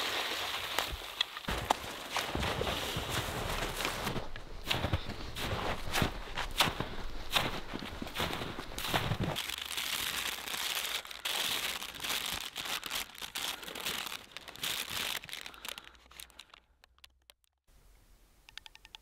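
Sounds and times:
paper map rustling: 0:00.0 - 0:16.7
faint clicks: 0:18.5 - 0:19.0.

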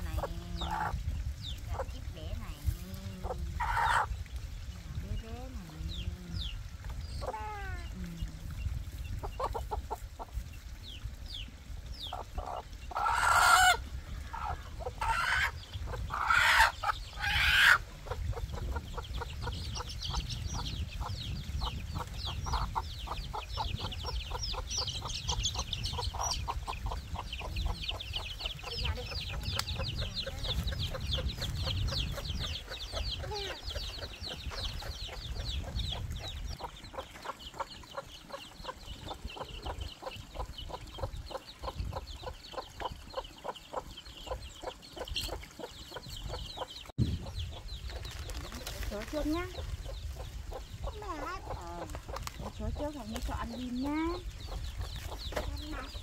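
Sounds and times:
chickens clucking: 0:00.0 - 0:11.1, 0:11.9 - 0:56.0
loud chicken calls: 0:12.9 - 0:17.8.

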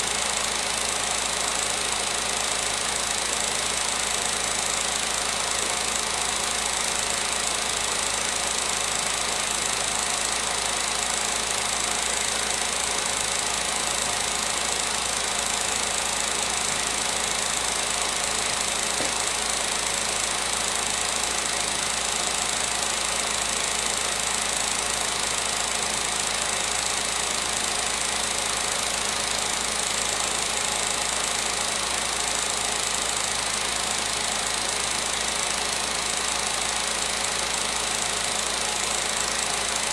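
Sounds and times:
film projector running: 0:00.0 - 0:39.9.

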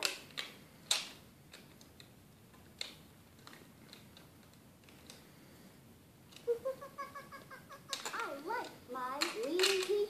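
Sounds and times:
plastic toy pieces clicking: 0:00.0 - 0:02.1, 0:07.8 - 0:10.0.

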